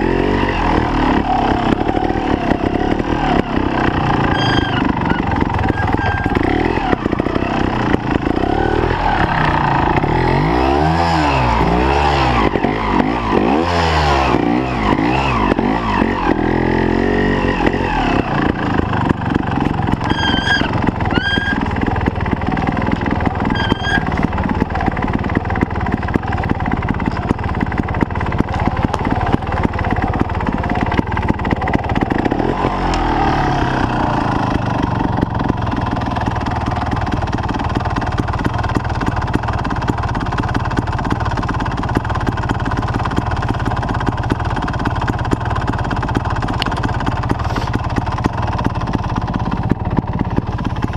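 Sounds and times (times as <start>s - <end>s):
motorcycle engine at low revs: 0.0s - 50.9s
short high squeaks: 4.1s - 6.5s, 20.0s - 21.8s, 23.4s - 24.2s.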